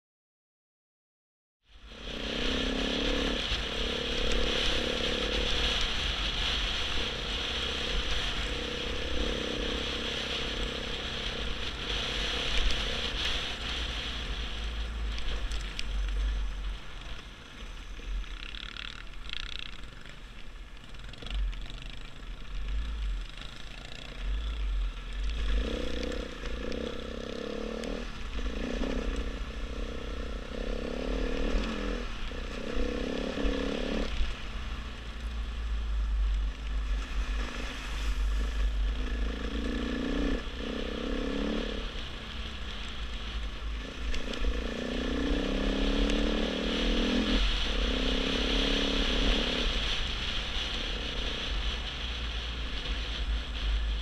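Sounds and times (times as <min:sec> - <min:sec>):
dirt bike engine revving: 0:02.0 - 0:14.3, 0:20.8 - 0:34.2, 0:37.2 - 0:42.0, 0:43.7 - 0:50.0.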